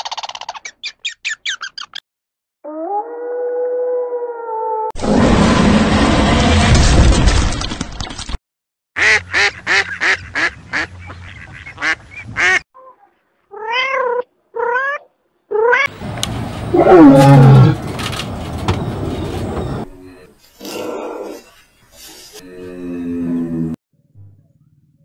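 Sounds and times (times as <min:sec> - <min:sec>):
lion calling: 0:16.6 - 0:18.0.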